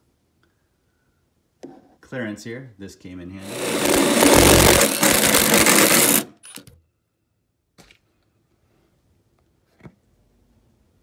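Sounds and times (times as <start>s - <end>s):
drill boring through wood: 3.4s - 6.4s.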